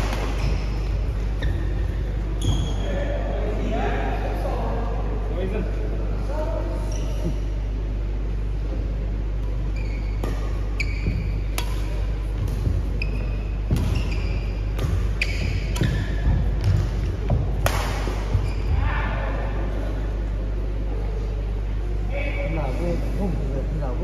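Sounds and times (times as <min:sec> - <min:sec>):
rackets hitting shuttlecock: 0:10.2 - 0:12.8, 0:13.5 - 0:18.5.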